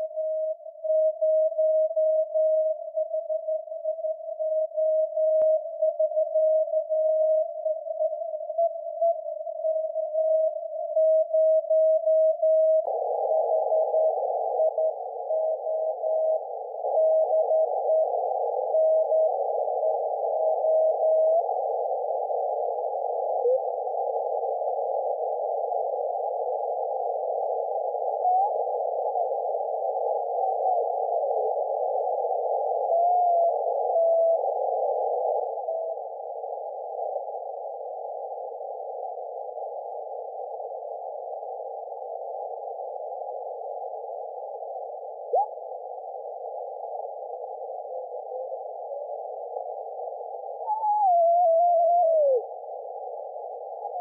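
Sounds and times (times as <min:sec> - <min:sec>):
weak radio signals: 0:11.1 - 0:54.0.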